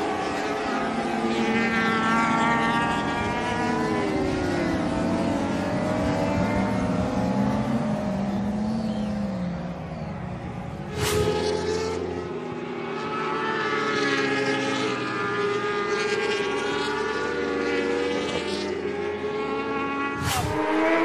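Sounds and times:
racing motorcycle engines at high revs: 0.0 - 21.0
brief sharp noise: 10.9 - 11.5, 20.2 - 21.0.

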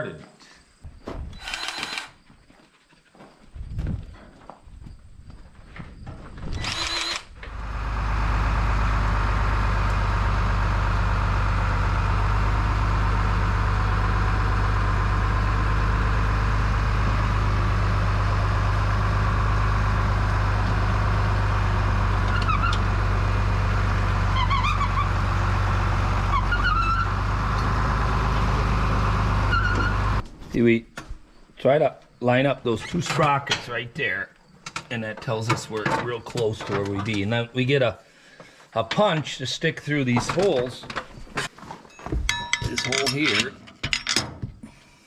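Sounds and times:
short squeaks: 1.2 - 2.2, 6.3 - 7.4, 22.2 - 22.9, 24.3 - 25.2, 26.2 - 27.2, 29.4 - 30.2
short whir: 1.3 - 2.2
tractor engine running: 5.7 - 30.3.

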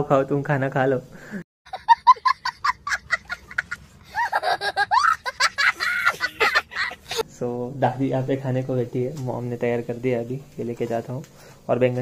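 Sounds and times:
child laughing: 1.7 - 7.2.

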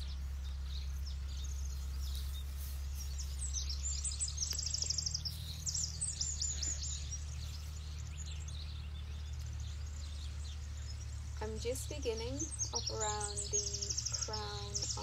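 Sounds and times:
birds chirping: 0.0 - 15.0
low background rumble: 0.0 - 15.0
bird trilling: 11.8 - 15.0.

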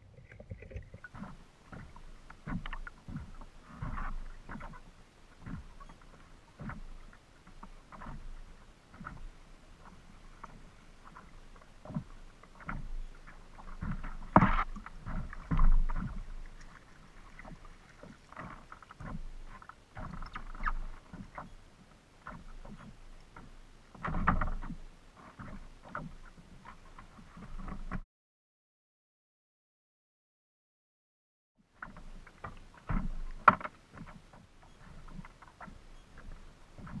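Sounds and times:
water slapping plastic hull: 0.0 - 28.0, 31.7 - 37.0
water splashes: 0.0 - 28.0, 31.8 - 37.0
knocks on kayak: 14.3 - 14.7.

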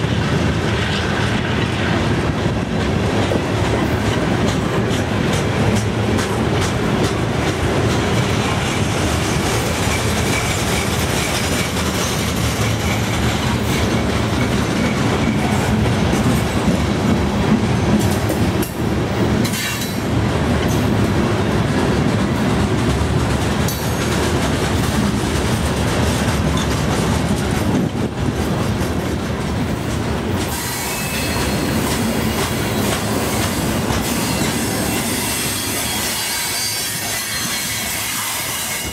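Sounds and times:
freight train rumbling past: 0.0 - 38.9
wheels clacking over rail joints: 0.0 - 38.9
high wheel squeal: 34.0 - 38.9.

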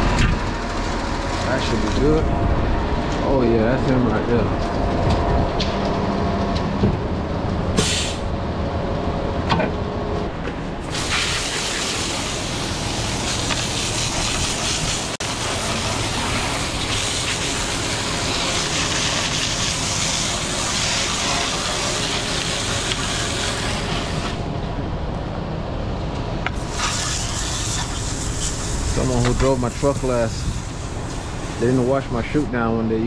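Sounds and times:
truck engine running: 0.0 - 11.1.

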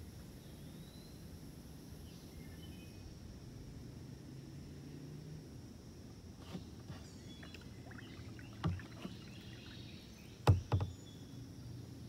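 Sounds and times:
paddle splashes: 6.4 - 11.0
paddle knocking on kayak: 7.4 - 9.8, 10.4 - 11.0.

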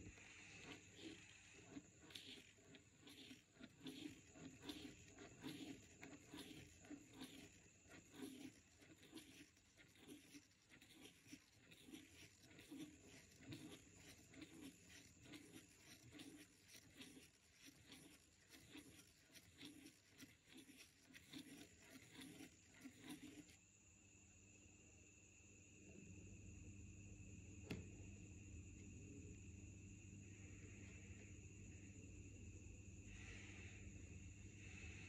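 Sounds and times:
gear wheel ticking and scratching: 0.0 - 23.6.

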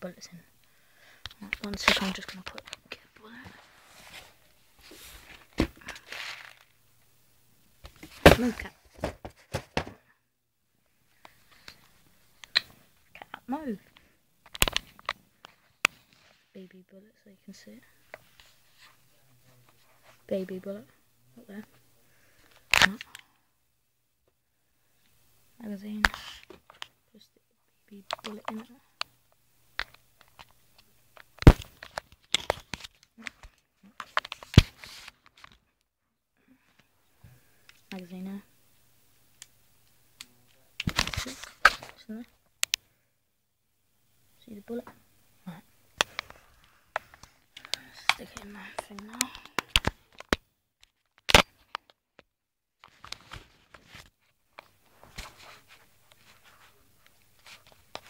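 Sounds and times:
rustling: 0.6 - 6.9.

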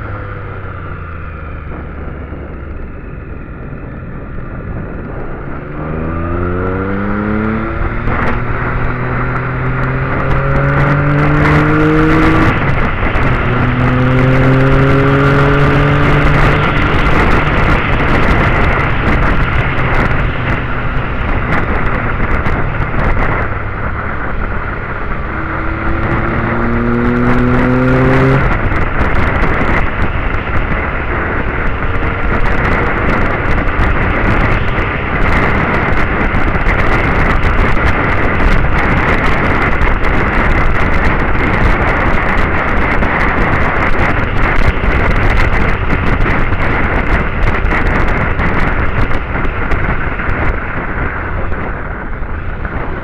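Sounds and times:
motorcycle engine pulling uphill: 0.0 - 53.0
wind buffeting microphone: 0.0 - 53.0.

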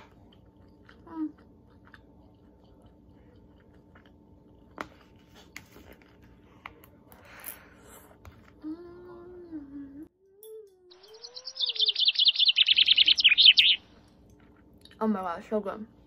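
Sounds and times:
chewing mouth sounds: 0.0 - 4.8
person humming: 8.5 - 11.3.

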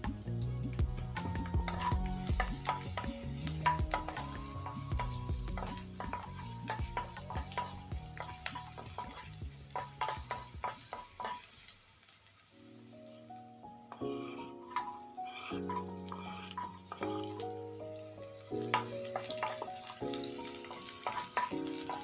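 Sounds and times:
garlic sizzling in oil: 0.8 - 22.0
spoon tapping and scraping pan: 1.2 - 11.7, 13.9 - 17.6, 18.6 - 22.0.

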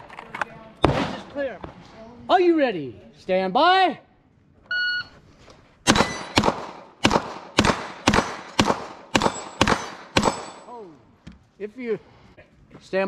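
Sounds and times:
pistol shots: 5.9 - 10.7.

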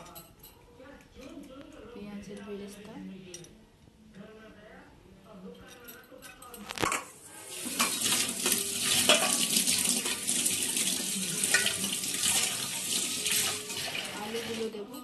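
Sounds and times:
water running: 7.1 - 14.8.

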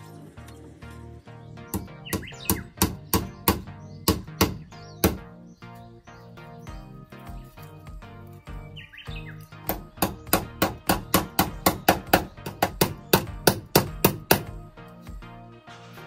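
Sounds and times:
background music: 0.0 - 16.0
rapid hammer strikes: 1.7 - 5.3, 9.6 - 14.6.

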